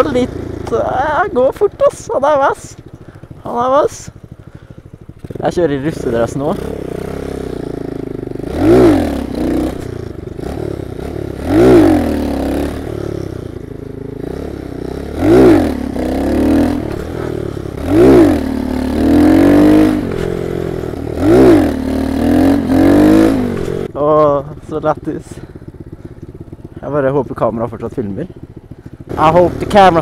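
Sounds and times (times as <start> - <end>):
small motorbike engine revving: 4.6 - 24.0.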